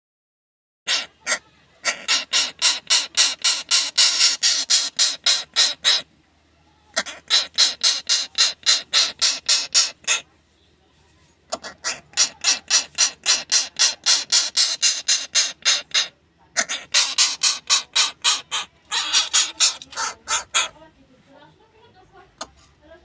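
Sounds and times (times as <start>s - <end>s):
rasping scrapes on hard surface: 1.8s - 6.0s, 11.5s - 20.7s.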